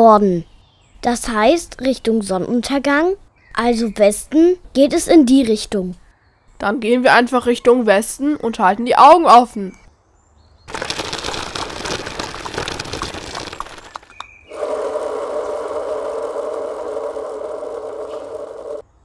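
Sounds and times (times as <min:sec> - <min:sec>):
rattling noise: 0:10.7 - 0:18.8
mechanical hum: 0:14.5 - 0:19.0.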